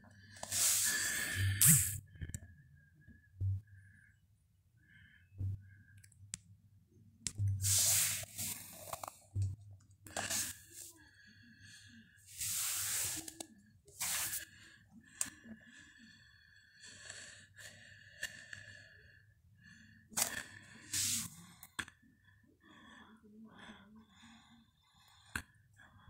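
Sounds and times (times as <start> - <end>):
hissy breathing: 0.4 - 2.0, 7.6 - 9.2, 10.1 - 16.3, 20.2 - 21.4.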